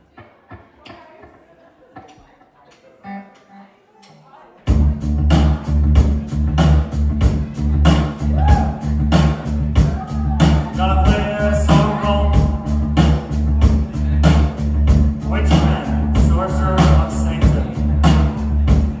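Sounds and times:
bass guitar: 0:04.7 - 0:19.0
distorted electric guitars: 0:04.7 - 0:19.0
fast drum beat: 0:04.7 - 0:19.0.

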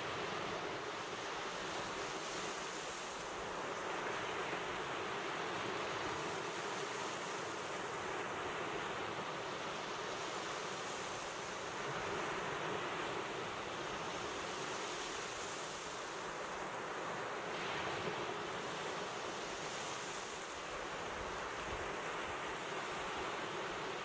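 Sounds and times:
waves breaking on beach: 0:00.0 - 0:24.0.

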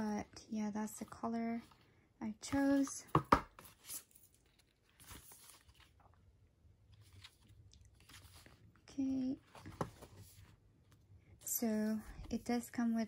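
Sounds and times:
paper and cardboard rustling: 0:03.5 - 0:06.2, 0:06.9 - 0:10.6.

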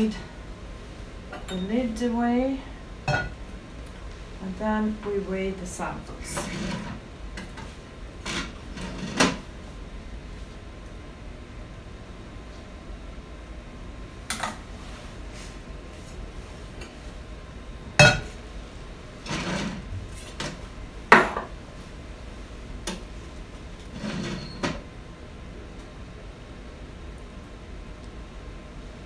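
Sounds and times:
glassware clinking: 0:01.4 - 0:01.7, 0:03.1 - 0:03.4, 0:18.0 - 0:18.3
scraping and handling sounds: 0:19.2 - 0:20.6, 0:23.8 - 0:24.8.

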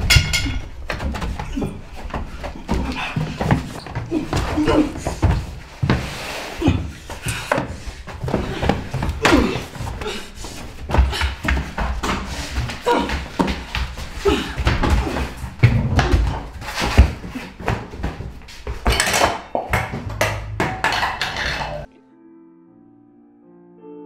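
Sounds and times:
thuds and knocks of scuffle: 0:00.0 - 0:21.9
people gasping: 0:00.3 - 0:18.7
soft music of sustained notes: 0:21.9 - 0:24.0.

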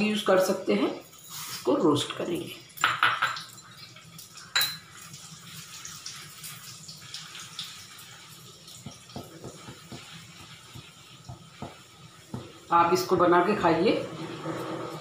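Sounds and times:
oil sizzling in a pan: 0:00.0 - 0:15.0
spatula scraping and tapping pan: 0:08.7 - 0:12.7.

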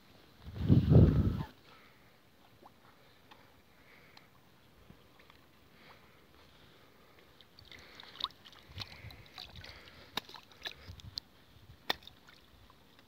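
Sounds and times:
water sloshing: 0:07.3 - 0:11.2
bread plopping into pond: 0:11.8 - 0:12.4.

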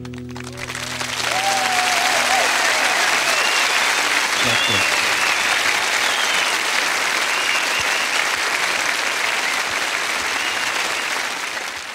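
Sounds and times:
audience applauding: 0:00.0 - 0:11.9
whistles from crowd: 0:01.3 - 0:08.4, 0:09.2 - 0:11.4.

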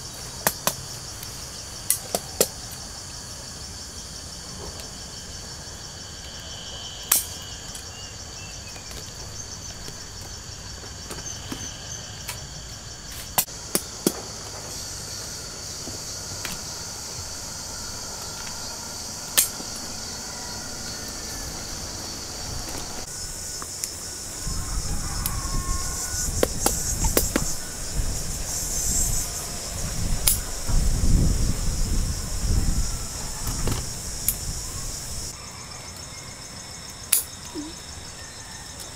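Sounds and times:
insects chirping: 0:00.0 - 0:38.9.

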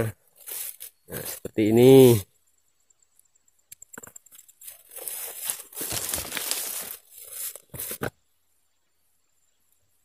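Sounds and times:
fronds and grass rustling: 0:00.0 - 0:02.2, 0:03.9 - 0:08.3.

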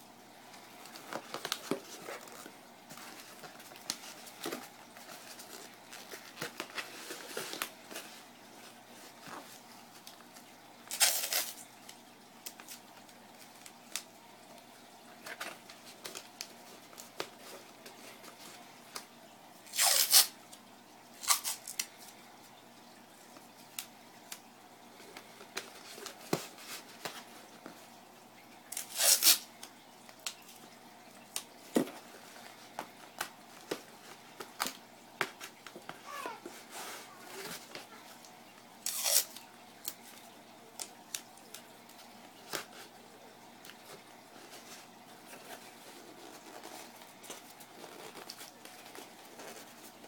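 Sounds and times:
masking tape ripping: 0:10.9 - 0:11.6, 0:19.7 - 0:20.3, 0:28.7 - 0:29.4, 0:38.8 - 0:39.4.

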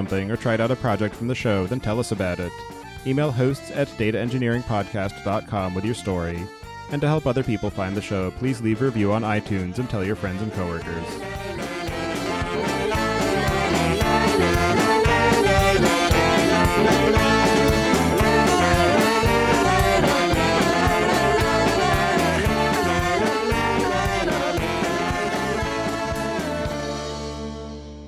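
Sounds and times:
music with a steady beat: 0:06.4 - 0:28.0.

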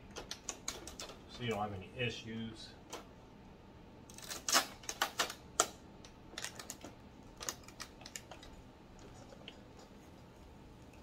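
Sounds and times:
tape peeling off plastic: 0:04.1 - 0:05.4.

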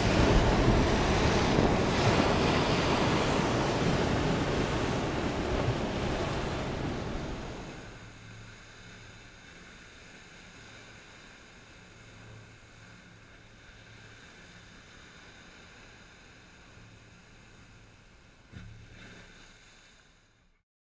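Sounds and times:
waves breaking on rocks: 0:00.0 - 0:08.0
low hum: 0:00.0 - 0:14.8.

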